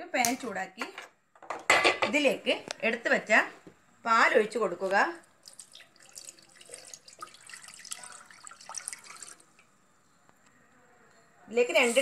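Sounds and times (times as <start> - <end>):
milk pouring into pot: 5.3 - 9.8.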